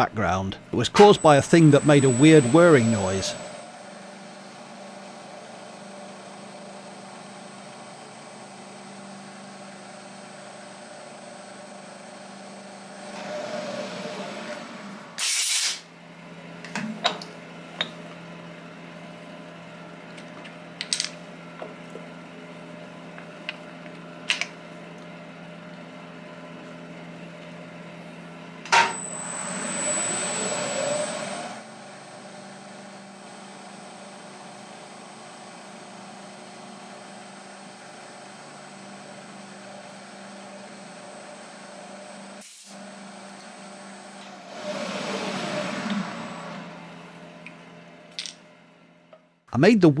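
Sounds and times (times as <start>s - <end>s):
milling machine whirring: 0.7s - 3.7s, 28.7s - 31.7s.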